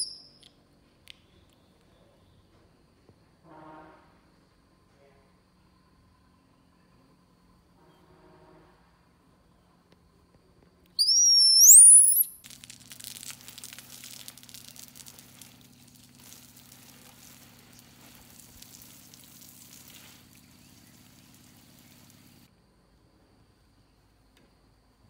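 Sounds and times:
baby monkey squealing: 0.0s - 0.3s, 11.0s - 12.4s
low steady hum: 12.3s - 24.3s.

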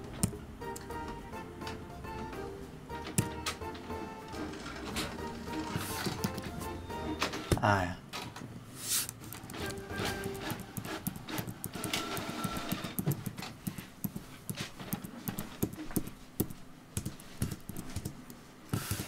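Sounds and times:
keyboard keys clicking: 2.9s - 3.9s, 5.2s - 6.7s, 9.2s - 19.0s.

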